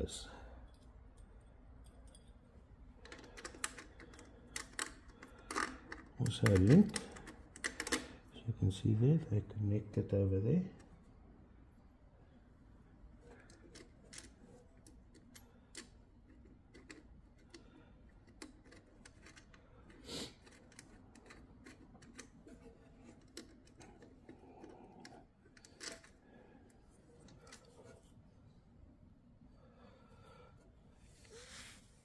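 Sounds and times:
clicks and taps of wiring hardware: 0:03.0 - 0:08.1, 0:16.7 - 0:26.2.

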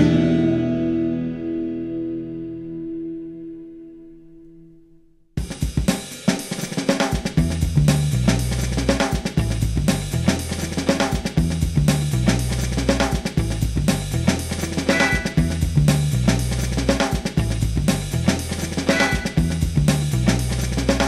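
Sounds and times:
bass line: 0:00.0 - 0:04.8, 0:07.4 - 0:21.0
drum kit: 0:05.4 - 0:21.0
rock band playing: 0:05.7 - 0:21.0.

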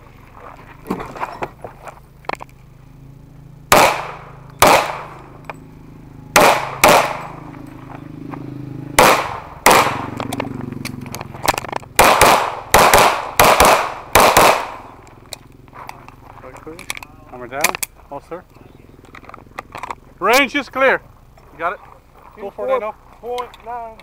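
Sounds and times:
pistol shots with echo: 0:03.7 - 0:05.3, 0:06.3 - 0:07.4, 0:09.0 - 0:10.3, 0:12.0 - 0:15.0.

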